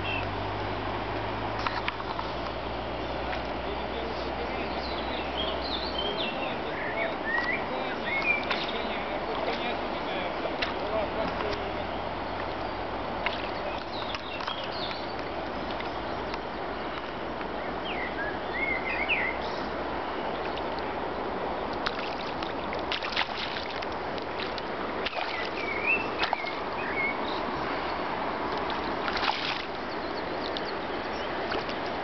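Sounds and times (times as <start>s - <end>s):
river water rushing: 0.0s - 32.0s
sharp knocks or splashes: 8.2s - 9.8s, 10.5s - 11.8s, 13.2s - 16.0s, 21.8s - 26.7s, 28.4s - 29.8s, 31.4s - 32.0s.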